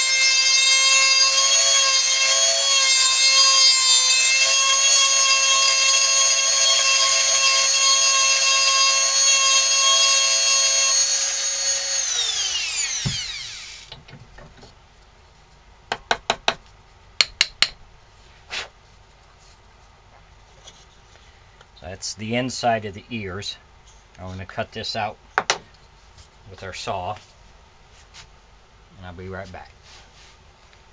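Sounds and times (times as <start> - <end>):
rotary tool whining: 0.0 - 14.0.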